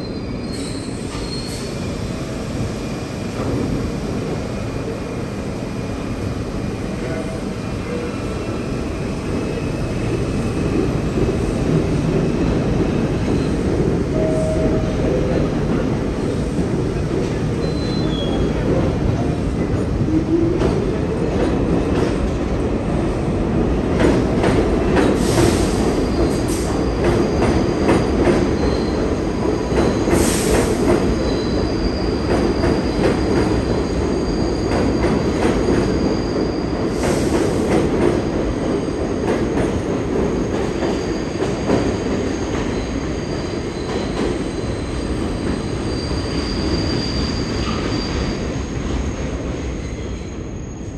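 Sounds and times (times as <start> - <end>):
subway train rumble: 0.0 - 50.9
high wheel squeal: 45.6 - 48.7.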